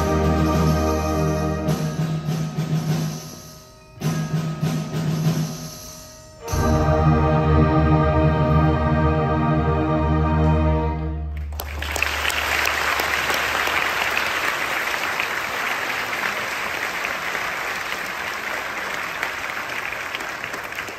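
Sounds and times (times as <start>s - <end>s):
band choir and orchestra chord: 0.0s - 2.0s, 6.4s - 11.4s
audience applause: 11.4s - 20.9s.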